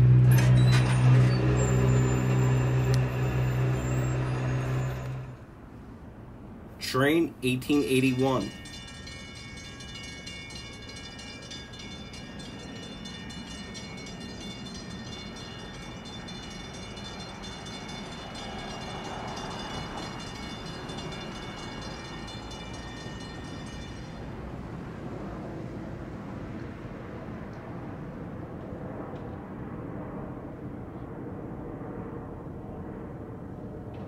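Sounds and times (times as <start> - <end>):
high whine: 0.0 - 5.6
train rumble: 0.0 - 6.0.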